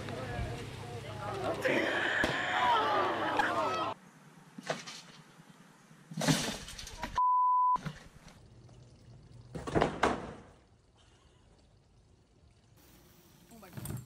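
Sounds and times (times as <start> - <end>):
censor beep: 7.2 - 7.8.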